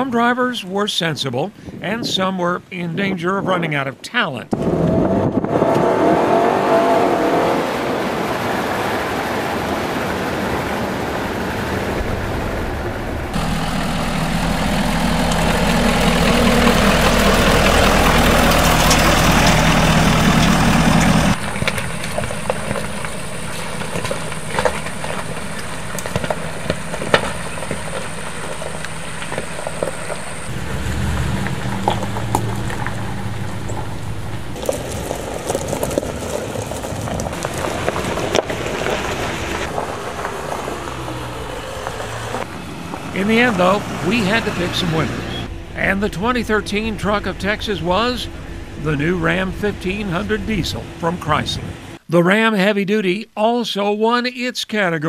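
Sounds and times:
truck engine and road noise in cab: 4.5 - 52.1
diesel engine running: 4.6 - 52.0
crackles: 8.0 - 52.0.

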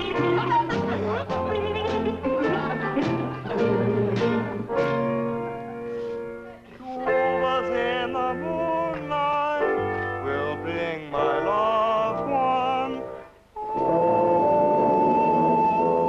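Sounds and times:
tuba band music: 0.0 - 6.5, 7.2 - 16.0
operatic singer: 6.8 - 16.0.

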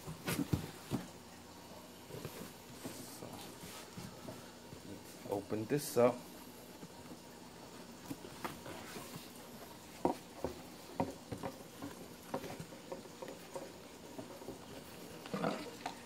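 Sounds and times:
cardboard and packaging rustling: 0.0 - 1.1.

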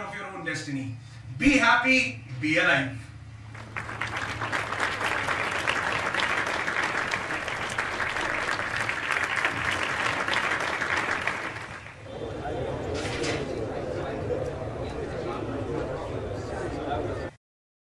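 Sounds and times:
audience applauding: 3.5 - 12.1.

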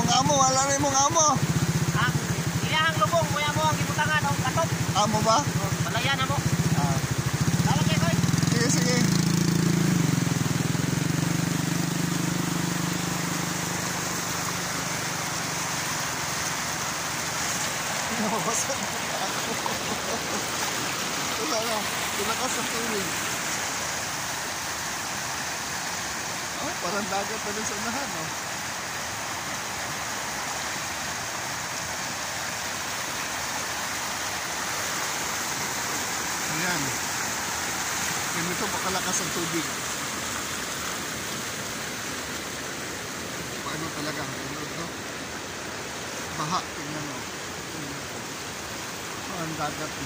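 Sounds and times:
fast-flowing floodwater rushing: 0.0 - 50.0
small motorcycle engine running: 4.4 - 16.7.

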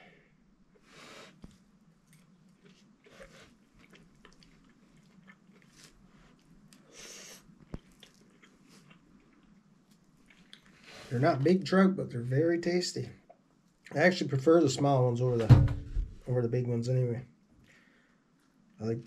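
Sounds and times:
man chewing: 0.8 - 11.1.

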